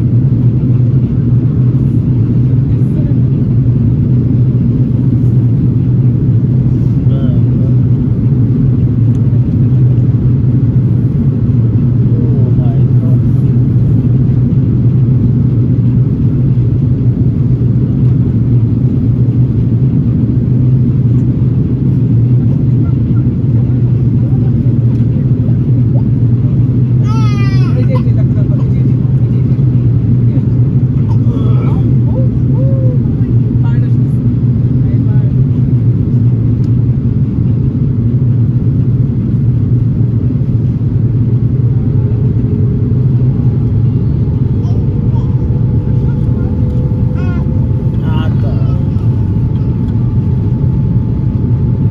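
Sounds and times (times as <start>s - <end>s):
aircraft cabin engine drone: 0.0s - 51.9s
airflow over fuselage: 0.0s - 51.9s.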